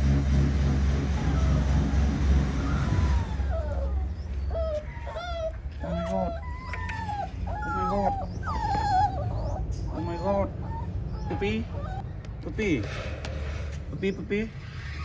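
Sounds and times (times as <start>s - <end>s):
low rumble: 0.0s - 4.6s
puppy whimpering and whining: 1.1s - 12.5s, 14.1s - 15.0s.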